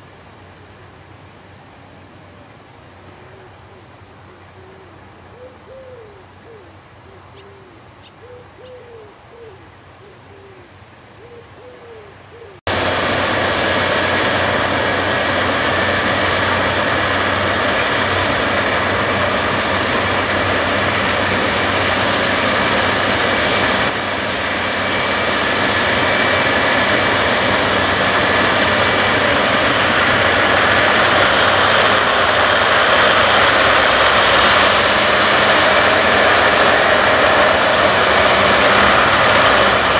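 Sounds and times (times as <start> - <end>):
combine harvester engine droning: 0.0 - 39.9
bird cooing: 2.3 - 12.6.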